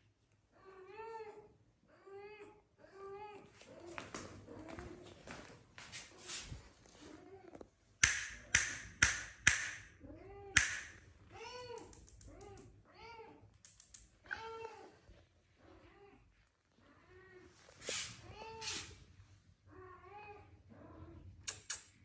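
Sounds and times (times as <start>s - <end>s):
sharp snaps: 8.0s - 9.9s, 10.6s - 11.0s, 11.6s - 12.7s, 21.4s - 22.0s.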